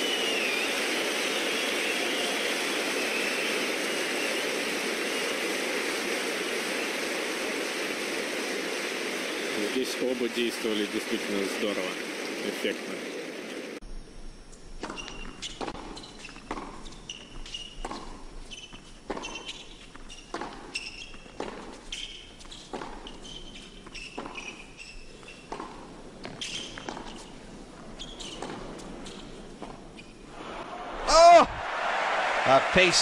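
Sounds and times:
tennis ball hit and bouncing: 0:14.8 - 0:27.3, 0:28.2 - 0:28.9
shoes squeaking on court: 0:14.8 - 0:30.4.

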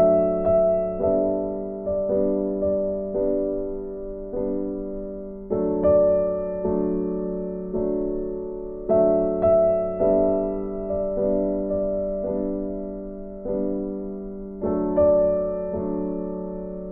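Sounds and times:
slow piano tune: 0:00.0 - 0:16.9.

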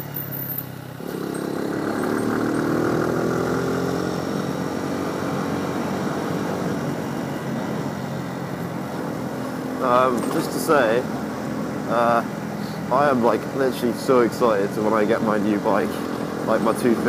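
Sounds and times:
motorcycle engine accelerating: 0:00.0 - 0:17.0.

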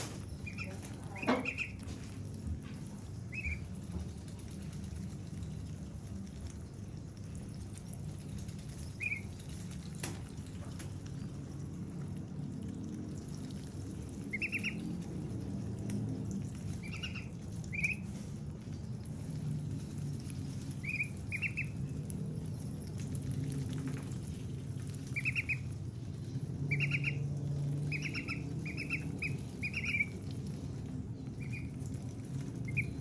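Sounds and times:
ducks pecking: 0:00.0 - 0:33.0
low hum: 0:00.0 - 0:33.0
ducklings peeping: 0:00.1 - 0:01.9, 0:02.9 - 0:06.0, 0:07.4 - 0:09.7, 0:14.0 - 0:15.4, 0:16.6 - 0:19.2, 0:19.9 - 0:22.5, 0:24.0 - 0:33.0.

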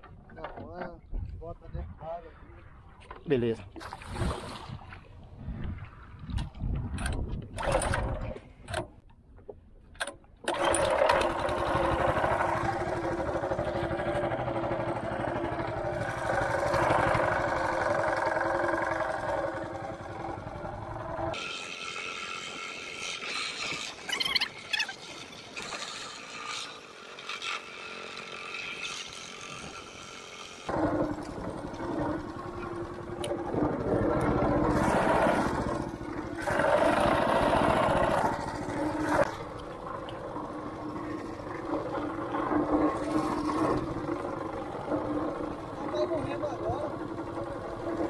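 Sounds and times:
water along hull: 0:02.3 - 0:48.0
small boat motor running: 0:10.4 - 0:48.0.

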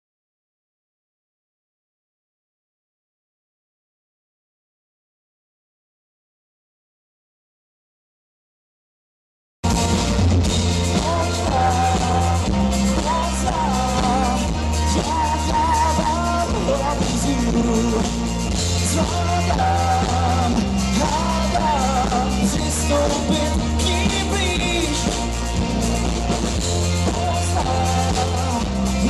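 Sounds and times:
rock band playing: 0:09.6 - 0:29.0
man singing: 0:10.7 - 0:25.8, 0:26.6 - 0:29.0.

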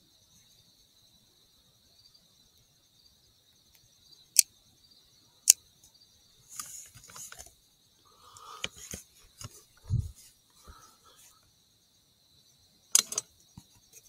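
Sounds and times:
crickets trilling: 0:00.0 - 0:14.0
rustling and small knocks: 0:05.8 - 0:07.6, 0:08.6 - 0:10.8, 0:12.9 - 0:14.0.

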